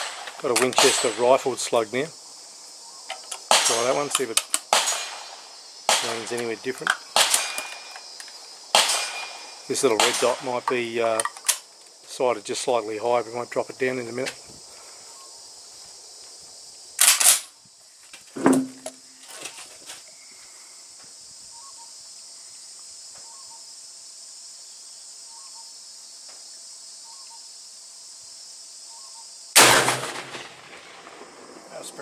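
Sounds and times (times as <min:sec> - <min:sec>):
insects chirping: 0:00.0 - 0:32.0
loud shotgun shot with echo: 0:03.5 - 0:04.1, 0:04.7 - 0:06.4, 0:07.2 - 0:07.8, 0:08.7 - 0:10.6, 0:29.6 - 0:31.4
sharp clacks and knocks: 0:18.4 - 0:19.0.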